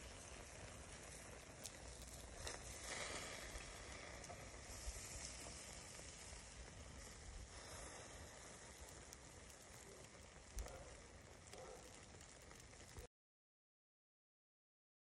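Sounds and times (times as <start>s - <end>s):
meat sizzling on grill: 0.0s - 13.1s
small pops: 8.6s - 13.1s.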